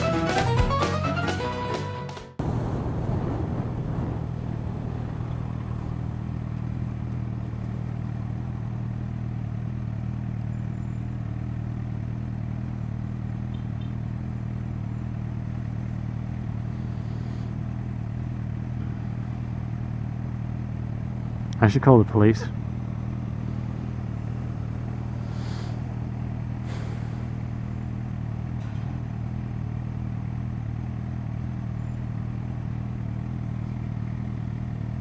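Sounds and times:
wind rush: 2.4s - 7.5s
motorcycle engine idling: 2.4s - 35.0s.

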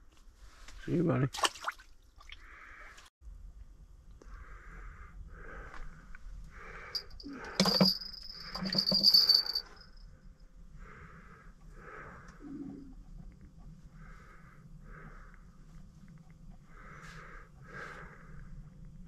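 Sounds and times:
person breathing heavily: 4.2s - 9.8s, 10.7s - 13.1s, 13.8s - 18.9s.

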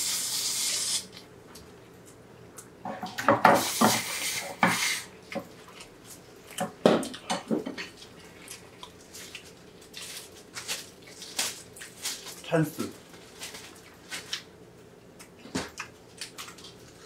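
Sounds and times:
chewing: 7.9s - 12.0s.

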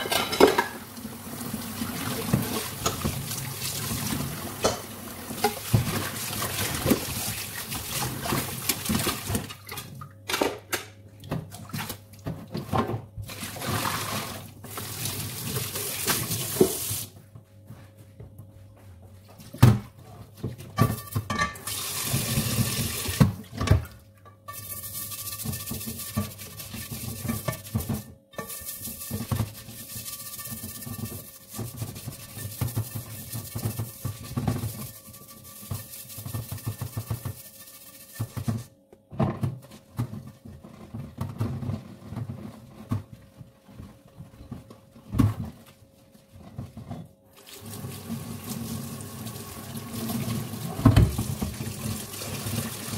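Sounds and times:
cookware clanking against sink: 0.0s - 0.9s, 4.6s - 5.8s, 20.8s - 21.7s
tap water running: 0.2s - 9.5s, 13.3s - 17.1s, 21.6s - 23.4s, 47.3s - 52.9s
sponge scrubbing a pot: 0.6s - 9.5s, 20.3s - 23.3s, 24.5s - 38.7s, 39.6s - 52.9s.

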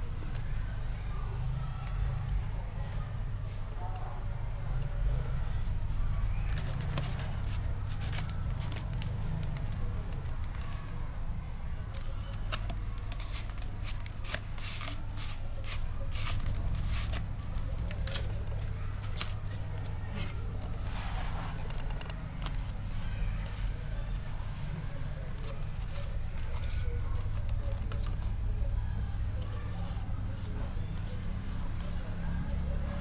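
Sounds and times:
light clicks and paper rustles: 5.6s - 11.2s, 11.9s - 24.3s, 24.9s - 28.4s.

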